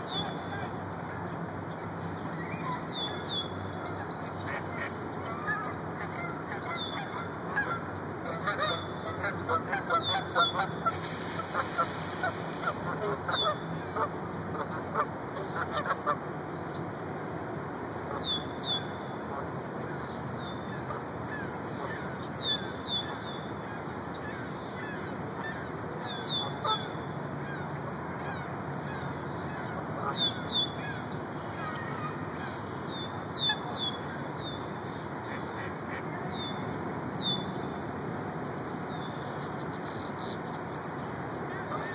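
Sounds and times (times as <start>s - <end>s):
background hiss: 10.2s - 14.6s.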